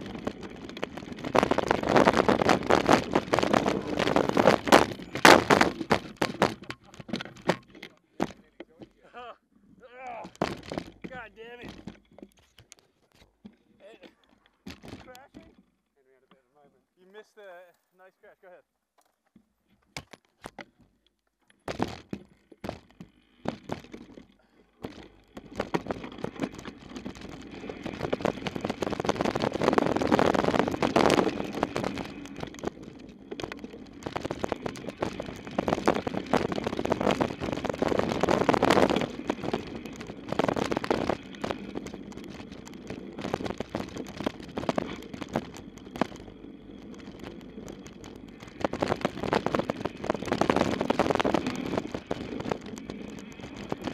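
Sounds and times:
tyre and wind rush: 0:00.0 - 0:06.7, 0:25.5 - 0:53.9
scattered clicks: 0:00.0 - 0:09.1, 0:19.9 - 0:53.9
bike rattling knocks: 0:00.0 - 0:09.2, 0:10.1 - 0:15.7, 0:19.9 - 0:53.9.

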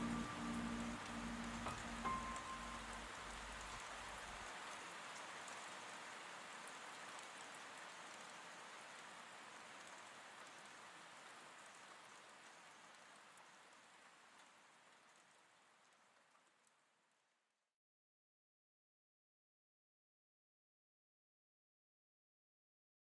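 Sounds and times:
steady rain falling: 0:00.0 - 0:17.5.

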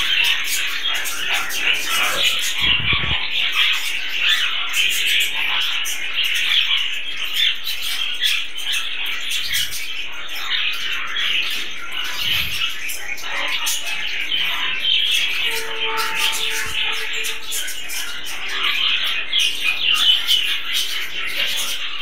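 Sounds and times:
budgerigars chattering: 0:00.0 - 0:22.0.

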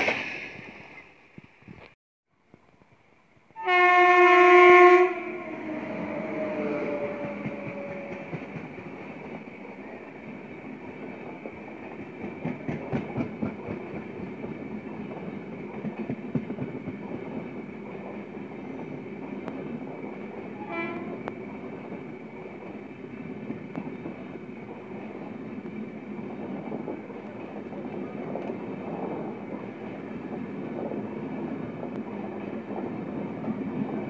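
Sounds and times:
train wheels roaring on rails: 0:02.8 - 0:34.0
locomotive horn: 0:03.6 - 0:08.4, 0:20.6 - 0:21.3
rhythmic clickety-clack over rail joints: 0:05.0 - 0:34.0.

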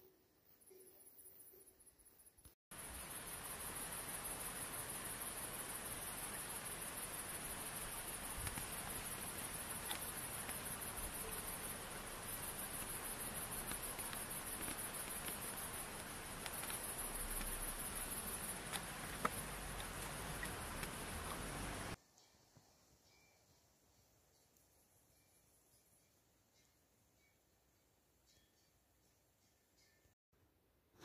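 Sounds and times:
crickets chirring: 0:00.5 - 0:22.3
soft hiss: 0:01.8 - 0:28.9.

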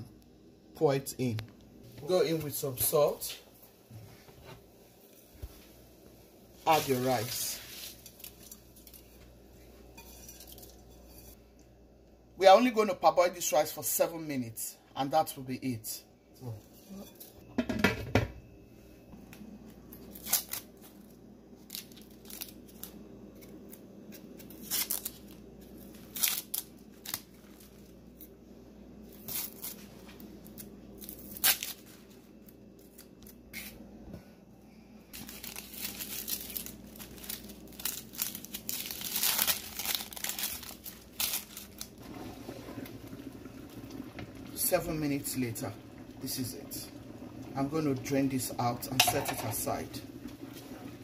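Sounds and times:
onion skins crackling: 0:06.6 - 0:09.3, 0:19.9 - 0:28.4, 0:29.0 - 0:33.8, 0:35.1 - 0:44.5.

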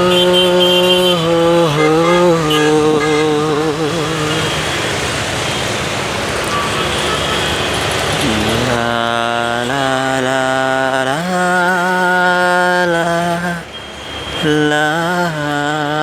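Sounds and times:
man humming a slow tune: 0:00.0 - 0:04.5, 0:08.2 - 0:13.7.

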